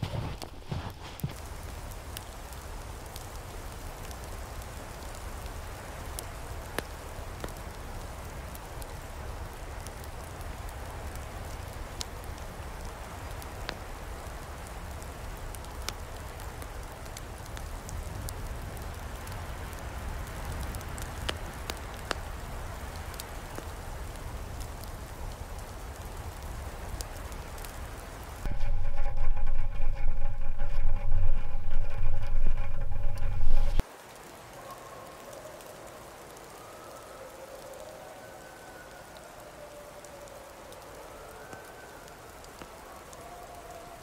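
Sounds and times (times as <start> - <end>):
campfire crackling and popping: 0.0 - 34.6, 39.1 - 44.0
low steady rumble: 28.5 - 33.8.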